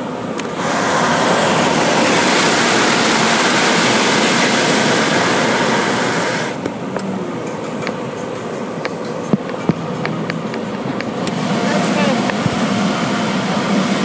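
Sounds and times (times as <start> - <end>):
pressure washer spray hissing: 0.4 - 6.6.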